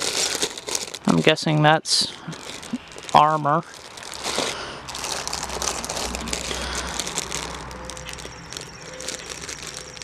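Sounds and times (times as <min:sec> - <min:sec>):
plastic bags crinkling: 0:00.0 - 0:10.0.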